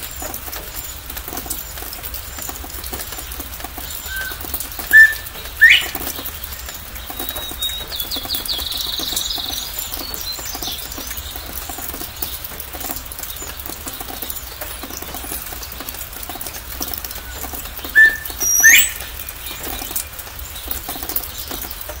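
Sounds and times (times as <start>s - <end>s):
rain pattering: 0.0s - 22.0s
bird rising whistle call: 4.1s - 6.0s, 18.0s - 19.1s.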